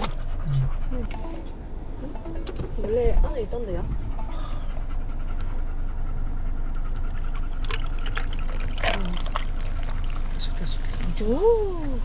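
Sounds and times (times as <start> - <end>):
low car cabin rumble: 0.0 - 12.0
cola pouring over ice: 7.2 - 11.1.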